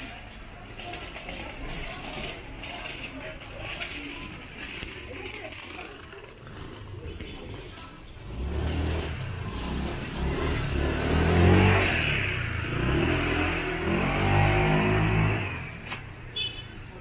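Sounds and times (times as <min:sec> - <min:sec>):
motor scooter engine revving: 0:06.0 - 0:16.1.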